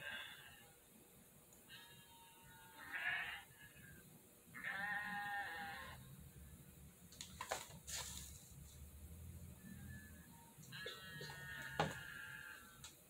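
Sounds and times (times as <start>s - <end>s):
sheep bleating: 1.7s - 3.9s, 4.5s - 6.1s, 10.7s - 12.8s.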